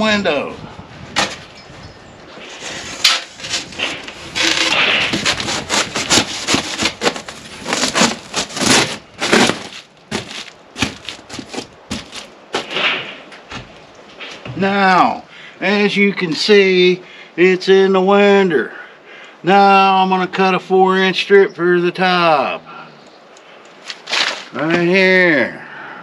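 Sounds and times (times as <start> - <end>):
foam rubbing and crackling on frame: 2.4 - 13.1.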